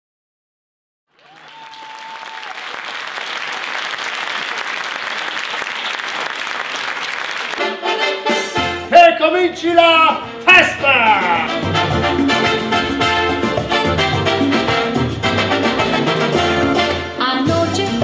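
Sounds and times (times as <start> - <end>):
audience applauding: 1.1 - 8.0.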